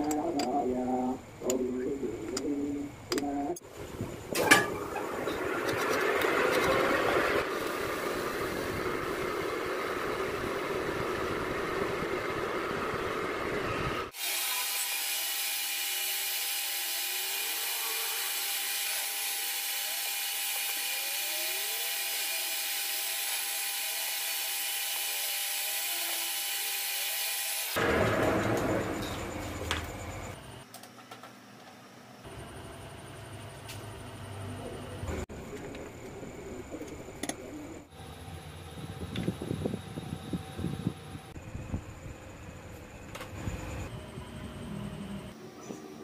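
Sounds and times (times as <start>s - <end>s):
lathe whine: 4.7s - 30.6s.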